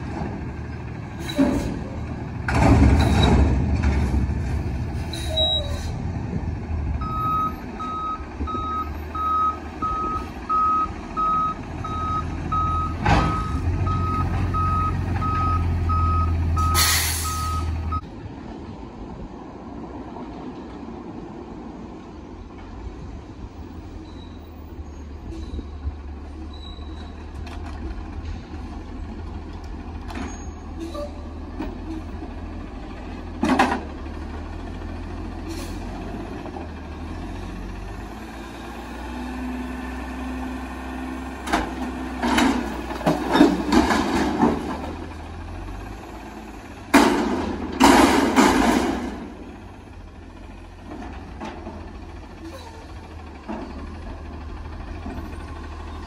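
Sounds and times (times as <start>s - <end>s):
metal clanking and banging: 1.4s - 4.7s, 41.4s - 45.0s, 46.9s - 49.4s.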